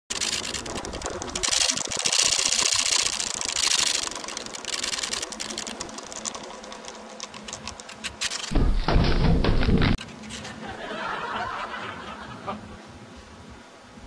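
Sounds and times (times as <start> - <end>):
rapid mechanical clicking: 0.1 - 10.0.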